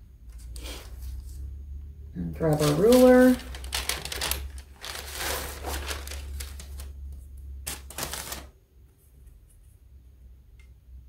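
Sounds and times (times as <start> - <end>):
rustling scrape of board: 3.8 - 6.8.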